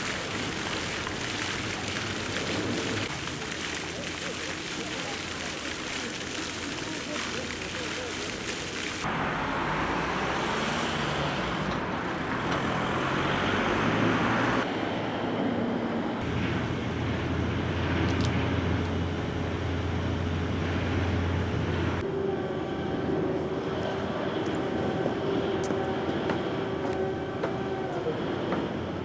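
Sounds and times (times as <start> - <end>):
low engine hum: 0.0 - 29.0
passing vehicles: 8.8 - 29.0.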